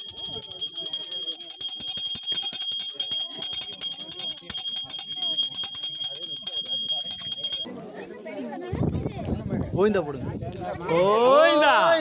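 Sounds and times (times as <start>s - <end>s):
hand bell rung rapidly: 0.0s - 7.7s.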